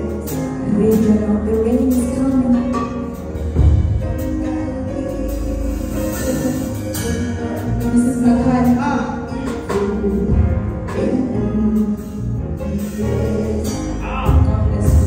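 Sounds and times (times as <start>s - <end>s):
bass: 0.0s - 15.0s
guitar: 0.0s - 15.0s
woman singing gospel: 4.4s - 15.0s.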